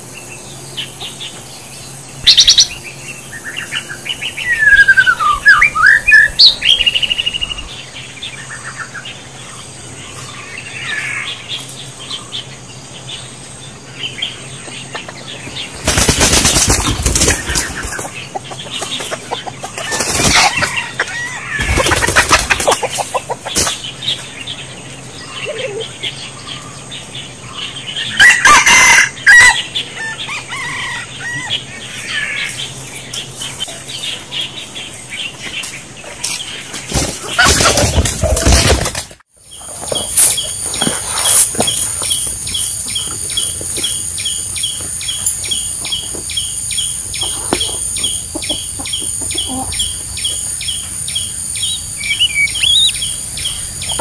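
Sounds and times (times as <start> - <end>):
chickens squawking: 14.5 - 24.2, 25.0 - 34.3, 36.0 - 39.0, 39.6 - 54.0
chickens flapping wings: 15.6 - 23.8, 36.7 - 42.4
short chirping calls: 39.5 - 54.0.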